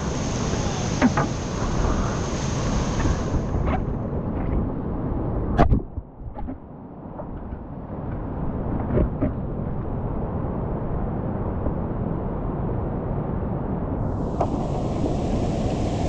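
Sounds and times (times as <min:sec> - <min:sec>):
whitewater rapids rushing: 0:00.0 - 0:04.0.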